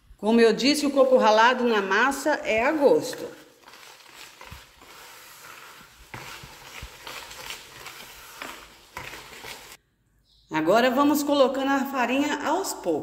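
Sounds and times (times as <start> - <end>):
whisk scraping thick mixture: 0.8 - 9.8.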